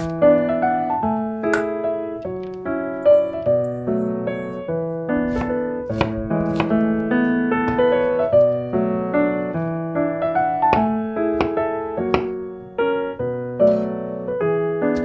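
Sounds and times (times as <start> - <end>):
piano music: 0.0 - 15.0
knife tapping on cutting board: 10.7 - 12.4.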